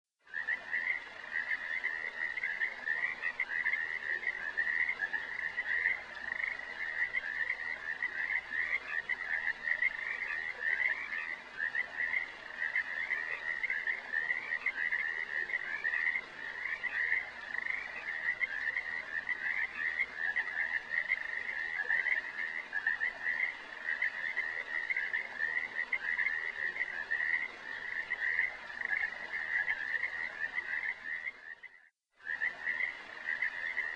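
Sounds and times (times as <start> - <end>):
chorus of trilled animal calls: 0.3 - 31.4.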